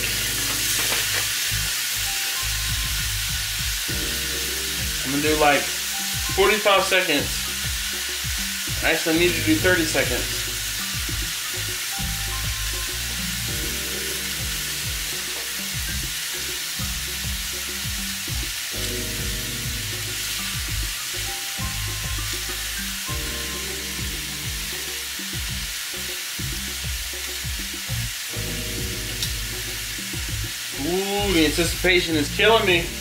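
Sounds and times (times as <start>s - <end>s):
background music: 0.0s - 33.0s
steak sizzling in a pan: 0.0s - 33.0s.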